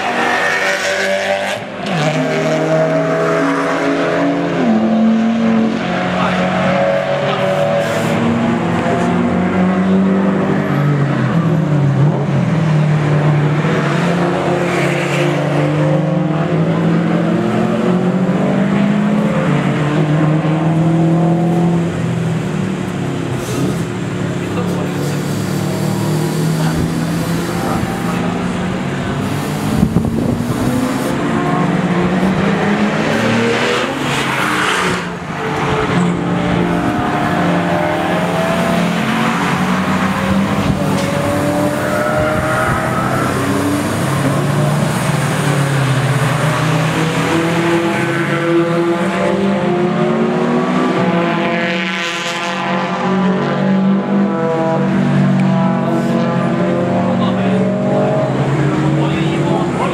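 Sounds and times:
racing car engines: 0:00.0 - 0:59.9.

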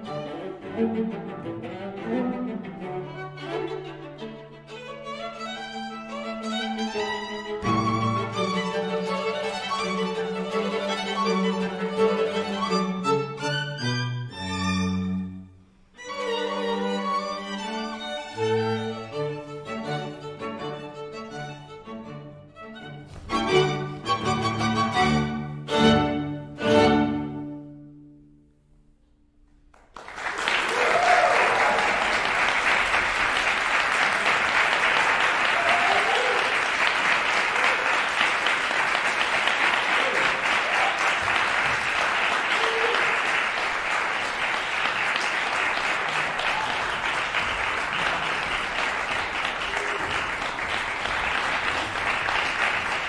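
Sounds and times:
audience applause: 0:29.7 - 0:53.0.

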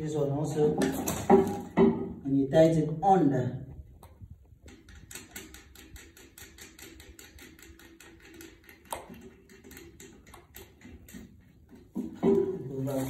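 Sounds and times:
rapid clicking of nut tightening: 0:04.5 - 0:12.4.

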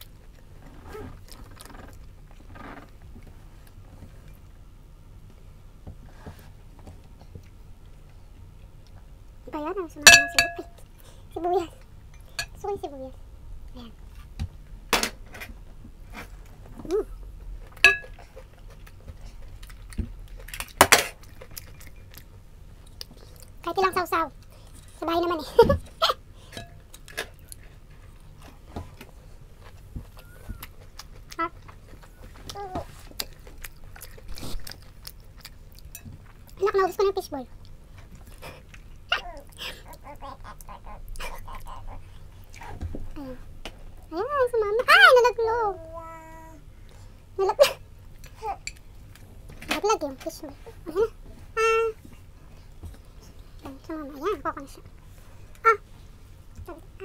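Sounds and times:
chopsticks knocking on ceramic: 0:10.1 - 0:10.7
ringing clink: 0:10.1 - 0:10.8, 0:17.9 - 0:18.1.

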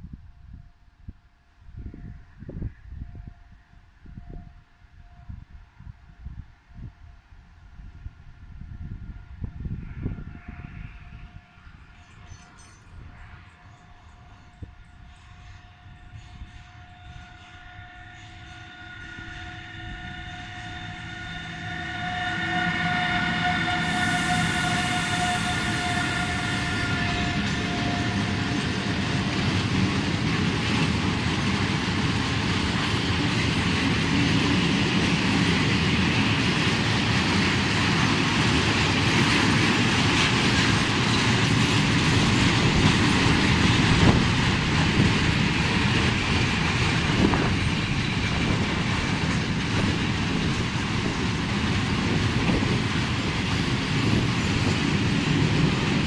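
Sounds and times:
locomotive whine: 0:01.7 - 0:56.0.

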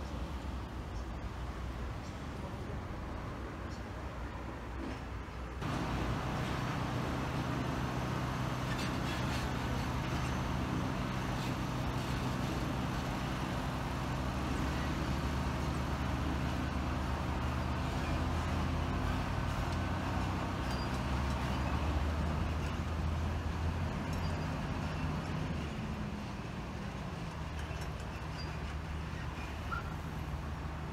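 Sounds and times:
truck engine low hum: 0:05.6 - 0:27.8.

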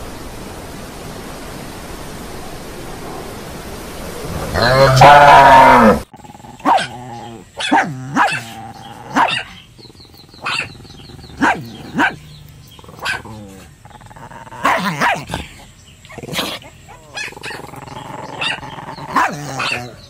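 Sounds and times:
dogs barking and yelping: 0:04.5 - 0:20.0.

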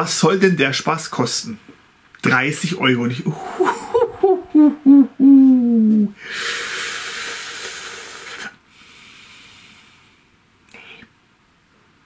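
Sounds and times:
man humming wordlessly: 0:03.3 - 0:06.2
man blowing out hissing breath: 0:05.9 - 0:11.1.

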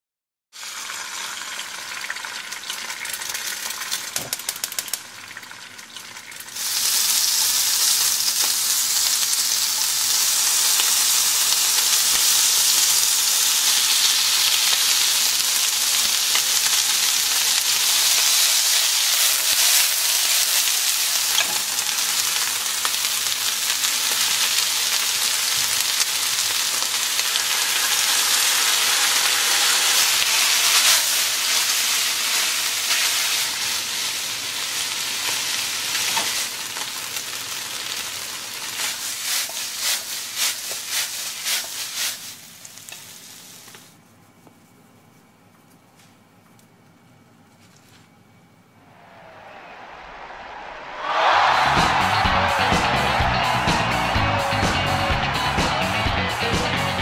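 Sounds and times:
food sizzling in a frying pan: 0:00.6 - 0:43.9
egg frying with crackles: 0:00.6 - 0:44.0.

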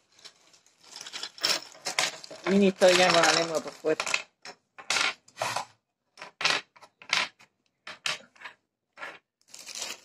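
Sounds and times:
plastic packets scraping and rustling: 0:00.0 - 0:04.3, 0:08.2 - 0:10.0.

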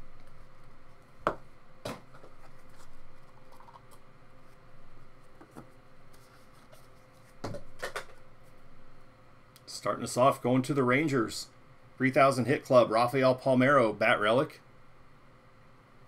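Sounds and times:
cardboard and cards rustling: 0:01.9 - 0:04.6.

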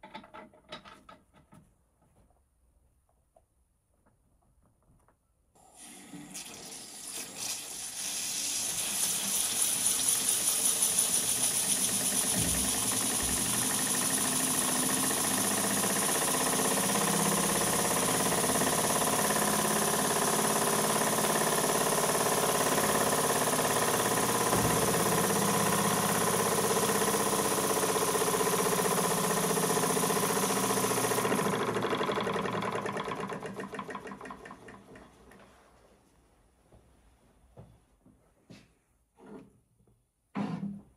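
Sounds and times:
steam hissing: 0:05.7 - 0:17.8
model steam engine running: 0:06.6 - 0:35.0.

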